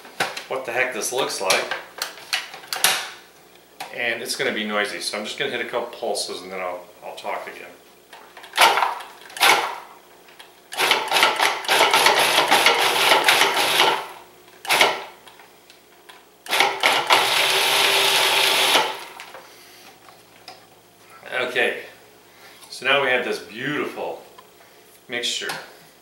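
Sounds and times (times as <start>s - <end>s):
food processor chopping: 8.6s - 9.9s, 10.8s - 15.1s, 16.5s - 19.3s.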